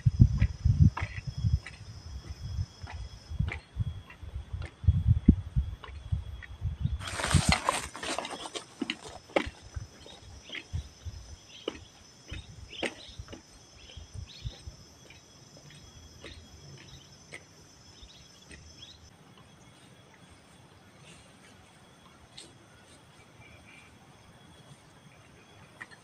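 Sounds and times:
insects droning: 0.0 - 26.0
footsteps through leafy plants: 7.0 - 9.4.

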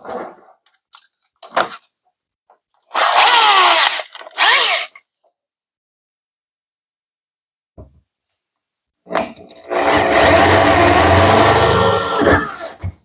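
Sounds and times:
electric drill running: 3.0 - 5.0.

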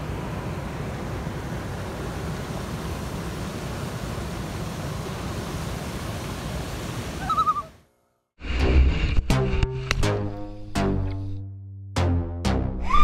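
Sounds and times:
river rapids and waterfall: 0.0 - 7.7.

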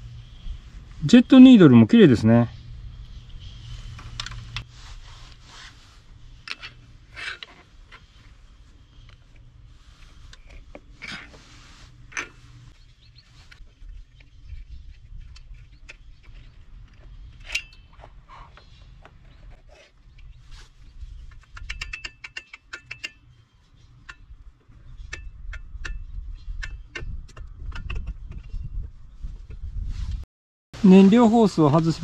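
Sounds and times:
screwdriver and metal parts clicking: 21.3 - 23.4.

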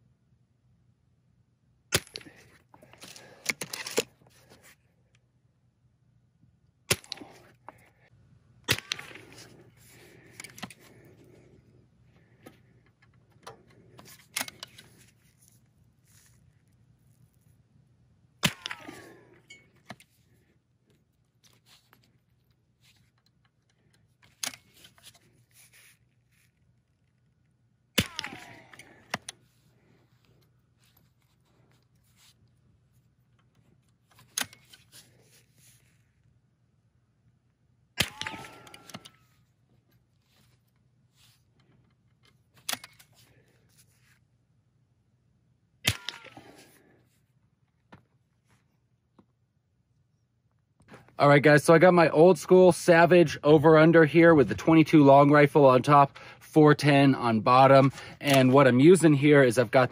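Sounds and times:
air rifle cocking click and rattle: 23.1 - 25.3, 42.1 - 43.2
air rifle firing sharp crack: 28.0 - 28.7.

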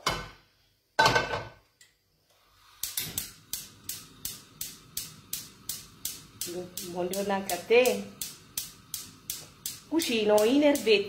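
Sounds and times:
gas hissing: 2.2 - 11.0
spark igniter clicking: 2.6 - 11.0.

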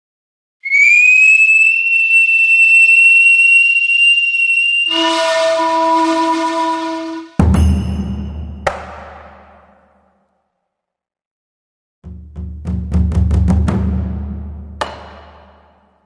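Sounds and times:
shrill whistle tone: 0.6 - 8.0
low horn-like blast: 4.9 - 7.4.

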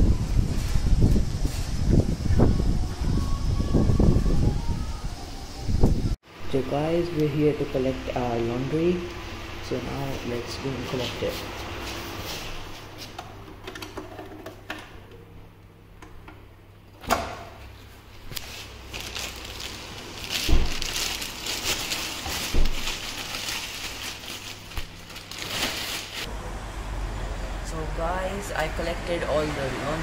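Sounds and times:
plastic bag rustling: 18.1 - 26.3.

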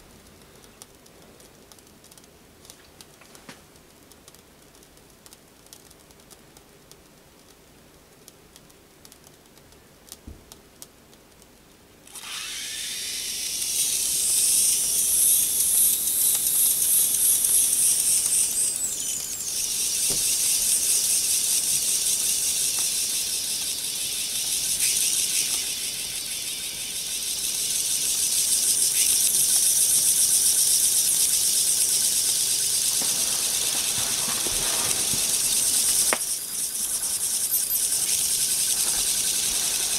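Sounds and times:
steam hissing from jets: 12.6 - 39.9.

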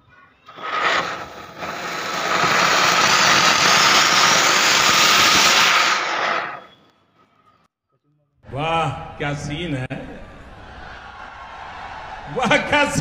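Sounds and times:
fountain firework hissing: 0.4 - 6.8.

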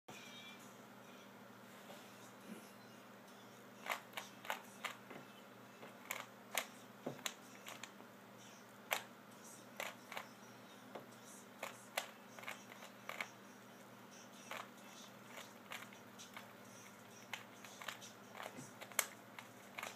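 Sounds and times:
faint steady hum: 0.1 - 19.9
puzzle cube layers clicking: 11.6 - 13.3, 17.2 - 19.9.

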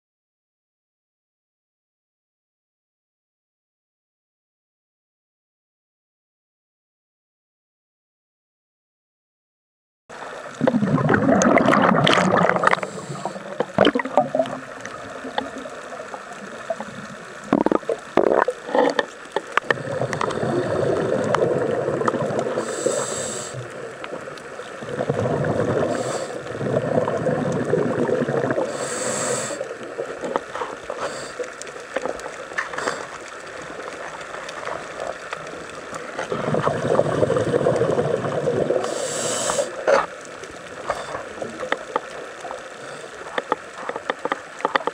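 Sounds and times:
bubbling exhalations underwater: 10.5 - 31.0, 31.9 - 42.6
regulator hissing inhalations: 12.7 - 13.6, 22.5 - 23.7, 25.9 - 26.5, 28.7 - 29.7, 30.6 - 31.5, 32.7 - 33.2, 38.8 - 40.0.

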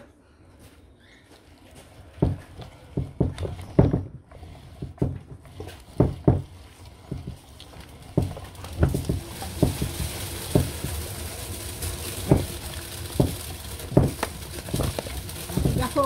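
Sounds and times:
fire hissing: 2.0 - 16.0
knocks and thumps: 2.2 - 11.1, 12.1 - 16.0.

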